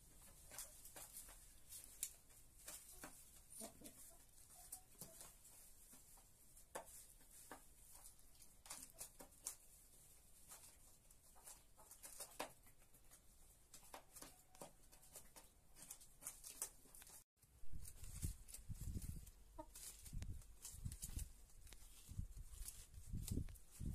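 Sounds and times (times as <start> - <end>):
hens pecking plastic feeder: 0.0 - 17.2.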